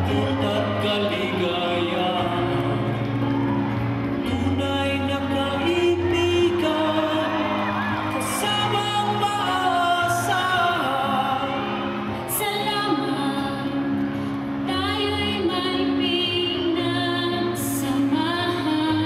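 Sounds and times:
backing track: 0.0 - 19.0
woman singing into a microphone: 4.3 - 19.0.

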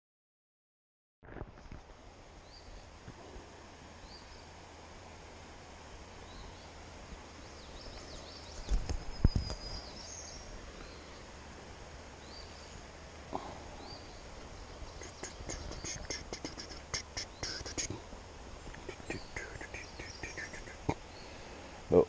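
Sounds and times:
small birds chirping: 4.0 - 4.6, 6.0 - 11.5, 12.1 - 22.0.

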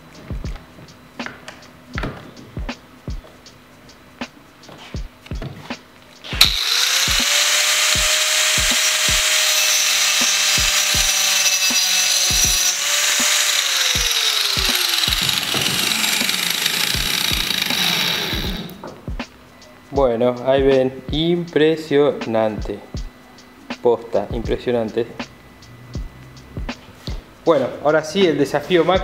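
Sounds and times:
background music with steady beat: 0.0 - 29.0
angle grinder cutting wood: 6.2 - 18.8.

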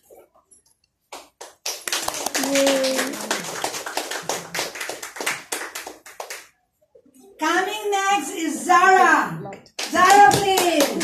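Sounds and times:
audience applause: 1.6 - 6.5.

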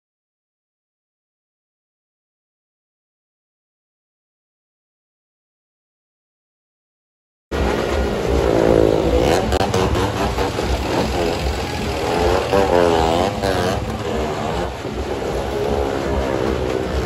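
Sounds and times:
motorcycle and car engines revving: 7.5 - 17.0.

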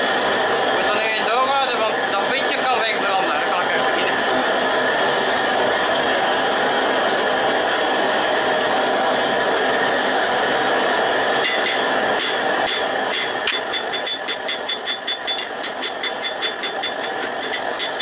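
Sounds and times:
gas forge burner hissing: 0.0 - 18.0.

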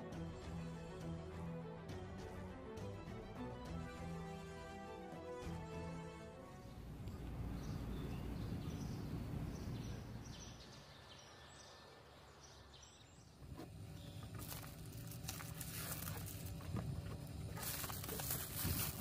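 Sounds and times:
steady low hum: 6.5 - 12.4, 13.1 - 19.0
plastic mailer rustling and scraping: 13.4 - 19.0.

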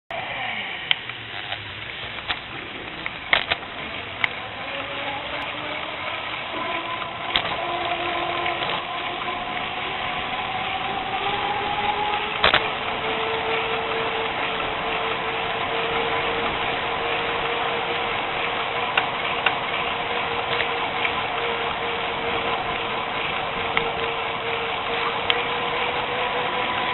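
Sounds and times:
humming tone sliding down: 0.1 - 26.9
road traffic hum: 0.2 - 26.9
bicycle rolling on asphalt: 0.8 - 26.9
clicks and knocks from bumps: 1.0 - 15.3.

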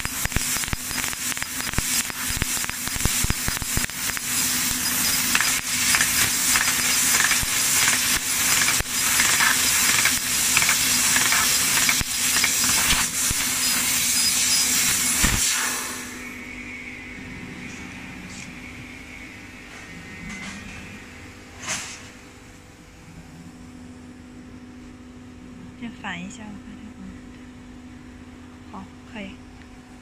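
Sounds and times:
crackling spatter: 0.0 - 15.5
laser cutting jet hissing: 0.0 - 17.1
low machine hum: 0.0 - 30.0.

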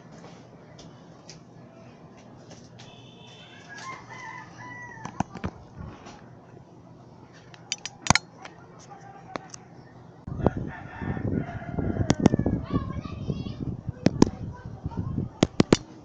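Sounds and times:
rooster crowing: 3.3 - 5.3, 10.3 - 12.6
rustling and bumping on microphone: 5.0 - 6.2, 13.9 - 14.4
phone clicks and knocks: 7.6 - 8.5, 15.4 - 15.9.

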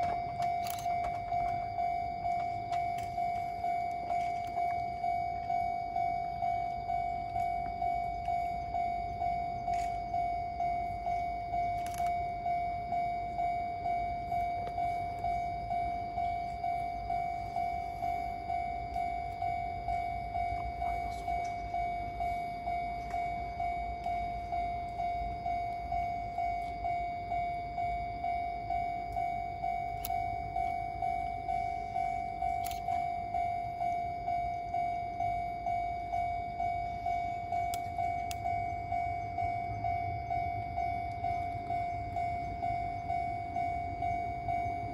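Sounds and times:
level crossing bell dinging: 0.0 - 44.9.

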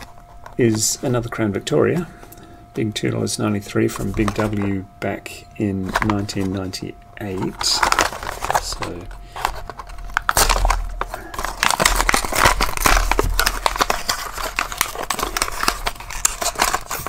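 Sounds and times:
plastic packaging tearing and crinkling: 7.2 - 17.0.

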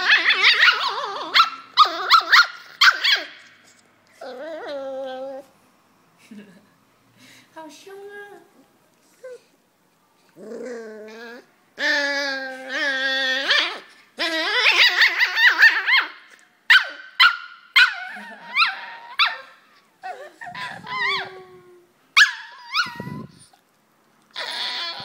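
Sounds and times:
dogs whining and yipping: 0.0 - 3.5, 4.1 - 5.6, 10.4 - 23.7, 24.3 - 25.0.

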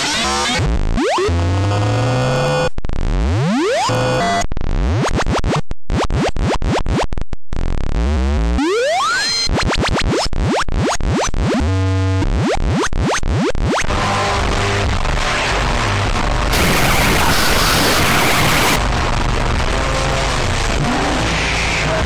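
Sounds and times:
digital noise cut-up music: 0.0 - 22.0
stuttering repeated tone: 0.6 - 7.2, 7.9 - 13.9, 16.5 - 18.8.

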